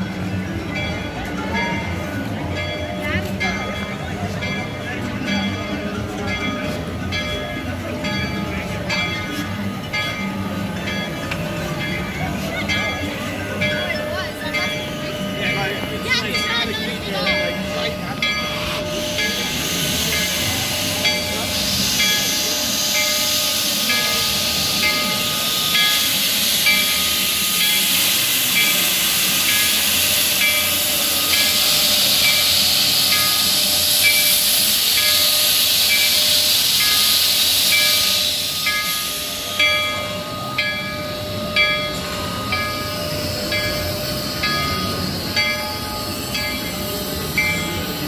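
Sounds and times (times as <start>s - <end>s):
locomotive bell ringing: 0.0s - 48.0s
steam hissing from locomotive: 0.0s - 48.0s.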